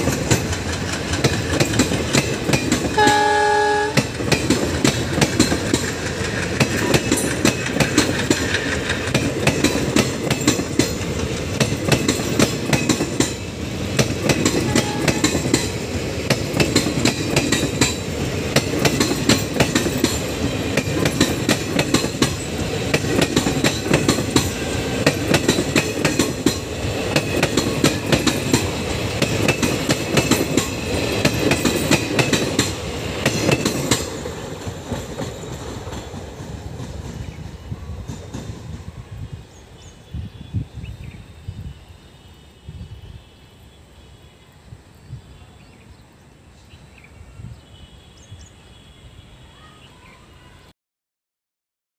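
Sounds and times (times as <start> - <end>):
wheels clicking over rail joints: 0.0 - 37.3
train coaches rumbling past: 0.0 - 50.7.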